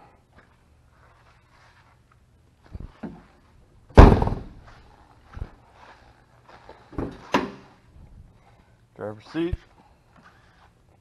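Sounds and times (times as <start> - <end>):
car door slamming: 4.0 - 4.6
soft thump: 4.0 - 4.6.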